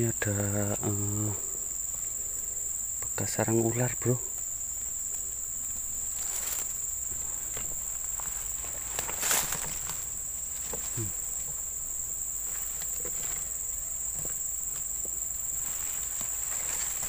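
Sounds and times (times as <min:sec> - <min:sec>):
insects droning: 0:00.0 - 0:17.0
rustle of grass and leaves: 0:00.0 - 0:17.0
footsteps: 0:05.7 - 0:17.0.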